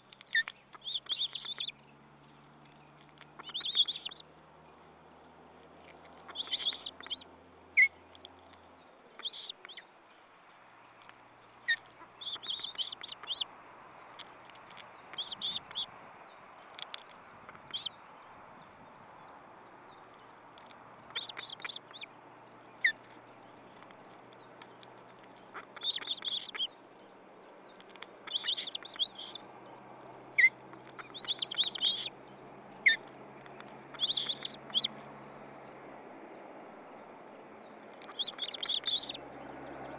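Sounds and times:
high thin bird chirps: 0:00.0 - 0:04.3, 0:05.8 - 0:10.2, 0:10.9 - 0:18.9, 0:19.9 - 0:29.5, 0:30.4 - 0:32.2, 0:32.8 - 0:35.0, 0:37.9 - 0:39.2.

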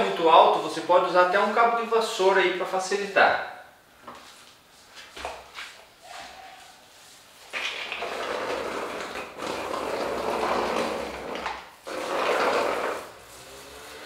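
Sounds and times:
paint roller rolling on a wall: 0:04.0 - 0:14.0.

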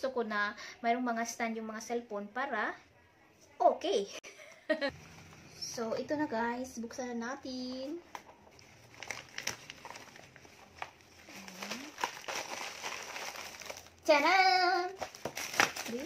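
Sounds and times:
paper and plastic packaging crinkling: 0:07.8 - 0:16.0.

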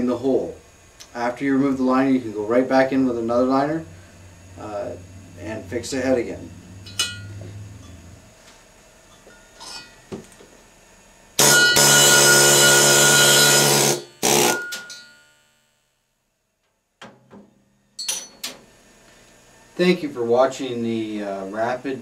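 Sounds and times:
pneumatic tool running: 0:11.4 - 0:14.9.

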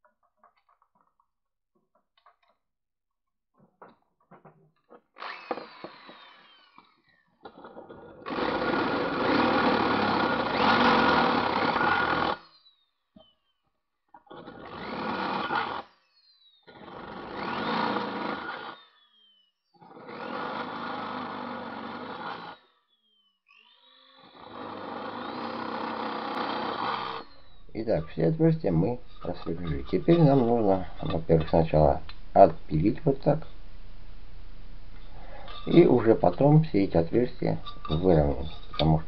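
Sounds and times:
drill press motor whining: 0:05.2 - 0:07.2, 0:08.2 - 0:12.7, 0:14.3 - 0:27.8.

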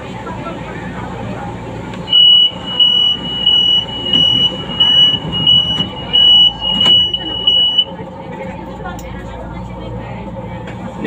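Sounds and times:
low rumble of train car: 0:00.0 - 0:11.0
train door warning beeps: 0:02.0 - 0:07.9.

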